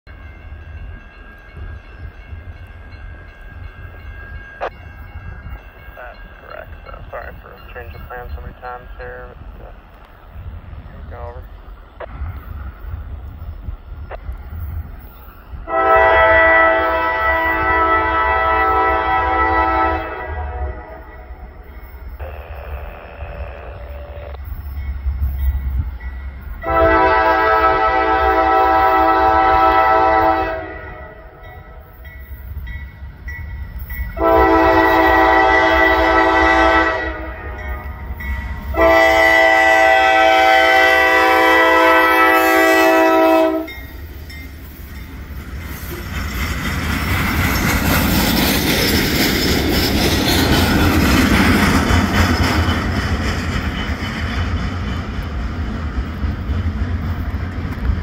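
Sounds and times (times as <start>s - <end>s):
diesel locomotive rumble: 0.2s - 58.0s
train air horn blast: 15.6s - 21.2s, 22.2s - 24.4s, 26.6s - 31.4s, 34.2s - 37.6s, 38.7s - 43.8s.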